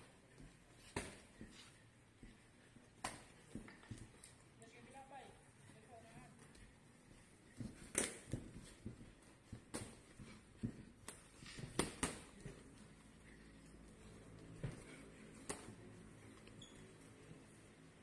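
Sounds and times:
boxing gloves punches: 0:07.6 - 0:12.7.

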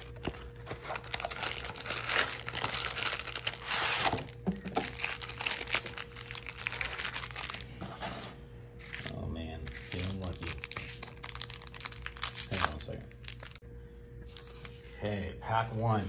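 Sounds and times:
crinkling plastic wrappers: 0:00.0 - 0:07.8, 0:09.7 - 0:13.6.

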